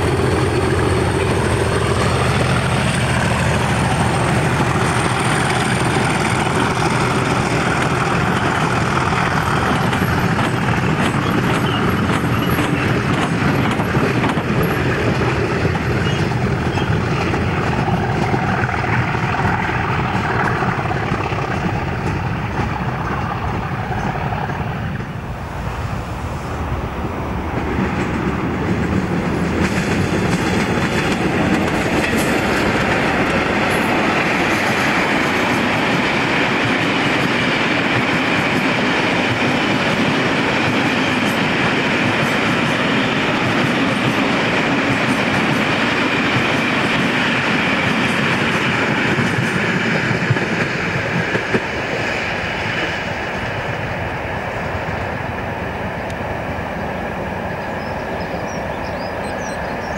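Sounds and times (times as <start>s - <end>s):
wheels clattering over rail joints: 0.0s - 38.7s
freight train rumbling past: 0.0s - 59.9s.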